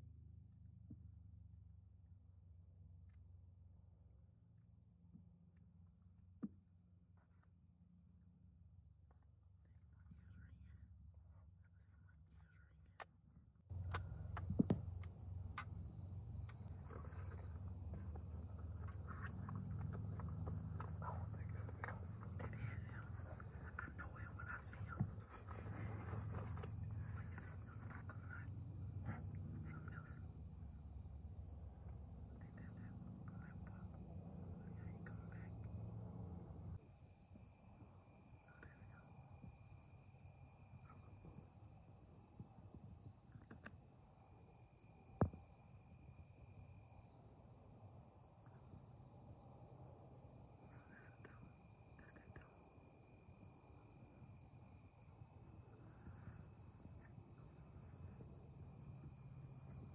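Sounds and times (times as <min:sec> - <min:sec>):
high-pitched insect chorus: 0:13.7 - 0:59.9.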